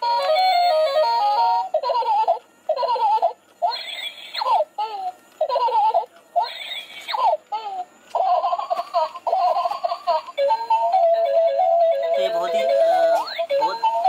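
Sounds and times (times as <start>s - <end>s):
recorded baby giggles from toy: 0.4s - 12.4s
simple electronic tune: 10.4s - 14.0s.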